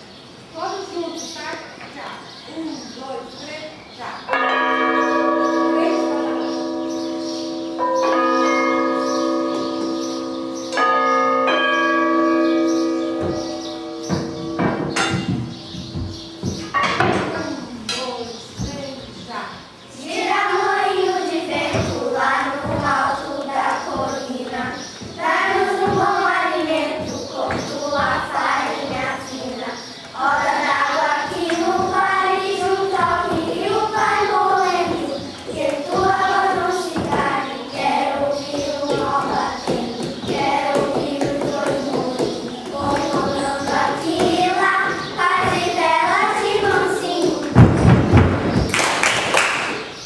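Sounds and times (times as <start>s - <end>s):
children singing: 4.3s - 17.8s, 20.0s - 48.2s
backing music: 4.4s - 17.1s.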